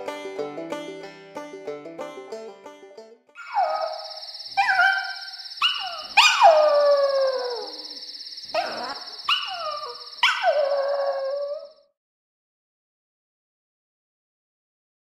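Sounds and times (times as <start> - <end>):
dog howling: 3.4 - 7.9, 8.5 - 11.8
steady high tone: 3.4 - 11.5.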